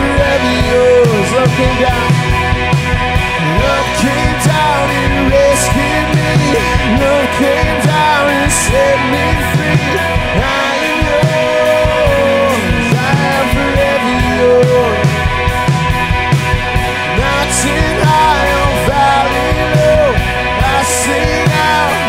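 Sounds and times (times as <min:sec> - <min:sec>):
man singing: 0:00.0 - 0:02.5, 0:03.3 - 0:15.7, 0:17.0 - 0:22.0
drum kit: 0:00.0 - 0:22.0
electric guitars: 0:00.0 - 0:22.0
rock band playing: 0:00.0 - 0:22.0.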